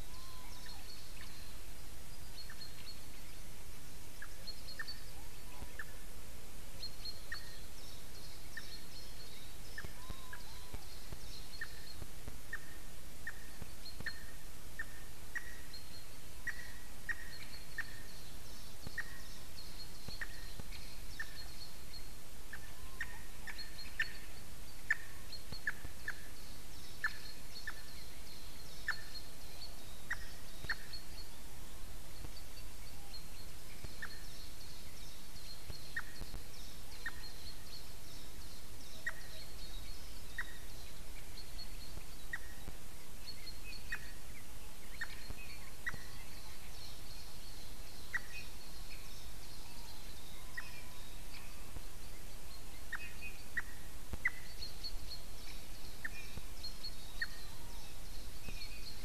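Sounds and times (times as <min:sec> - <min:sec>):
faint high chirping: 0:00.0 - 0:03.4, 0:06.8 - 0:59.0
steady hiss: 0:00.0 - 0:59.0
woodpecker calls: 0:08.3 - 0:31.3, 0:32.2 - 0:44.2, 0:44.9 - 0:51.7.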